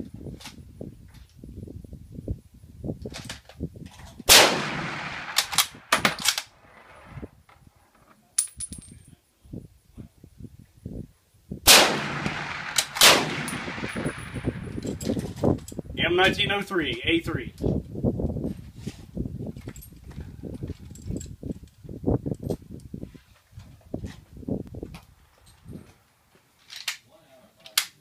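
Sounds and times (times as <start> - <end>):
metallic rifle bolt clicks: 3.1 - 6.5, 12.2 - 15.8
rifle shots echoing: 4.3 - 6.6, 11.7 - 15.0.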